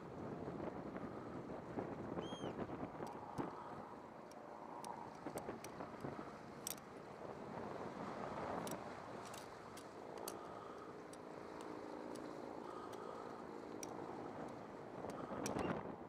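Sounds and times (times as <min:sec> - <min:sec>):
faint sharp clicks: 0:08.6 - 0:15.8.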